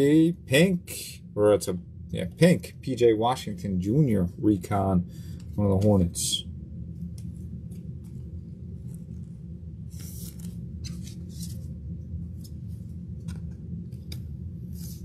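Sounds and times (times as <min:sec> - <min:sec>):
steady low hum: 0:00.0 - 0:15.0
cards sliding and swishing: 0:07.2 - 0:15.0.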